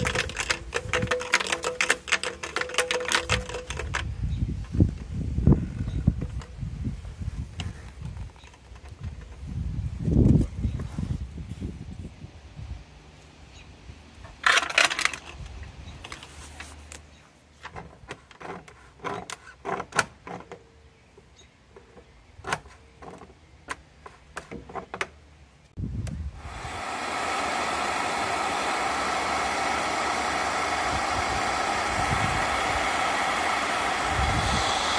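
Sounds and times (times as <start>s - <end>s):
pool pump whirring: 0.0s - 4.1s, 26.3s - 34.9s
wrench clicking and knocking: 0.0s - 4.1s.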